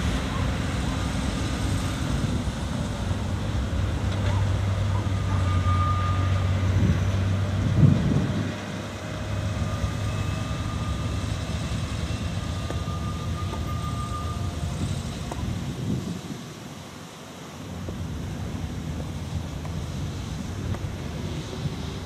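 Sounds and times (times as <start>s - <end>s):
freight wagons rumbling on rails: 0.0s - 22.0s
thin squeals: 9.6s - 15.2s.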